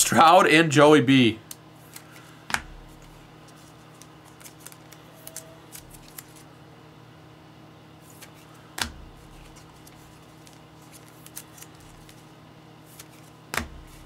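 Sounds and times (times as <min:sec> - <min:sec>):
cards and packaging clicking: 0:01.9 - 0:06.5, 0:09.2 - 0:12.2.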